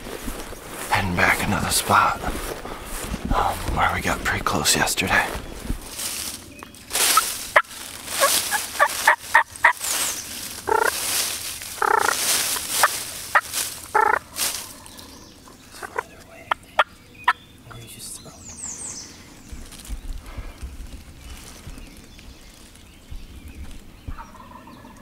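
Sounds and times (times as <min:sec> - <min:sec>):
turkey gobbling: 0:07.0 - 0:09.8, 0:10.6 - 0:11.1, 0:11.7 - 0:14.9, 0:15.7 - 0:17.4, 0:24.1 - 0:24.9.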